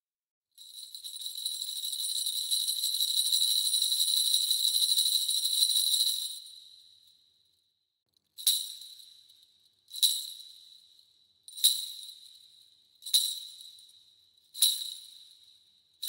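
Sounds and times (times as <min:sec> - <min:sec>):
small bells jingling: 0:00.6 - 0:06.7, 0:09.9 - 0:10.7, 0:11.5 - 0:14.0, 0:14.6 - 0:15.5.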